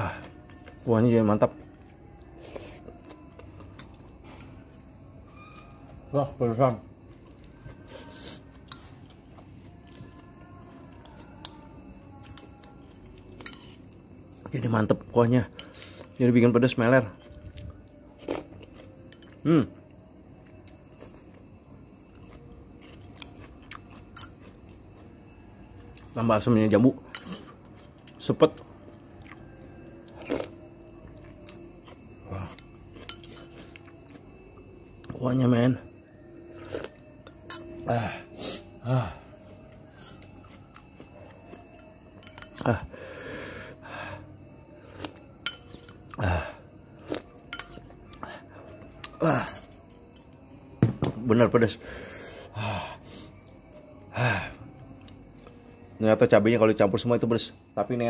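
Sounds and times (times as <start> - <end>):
person chewing quietly: 0.0 - 4.8, 7.0 - 14.6, 17.0 - 26.2, 27.1 - 35.2, 36.5 - 43.1, 44.8 - 49.2
metal spoon scraping ceramic bowl: 39.9 - 40.3.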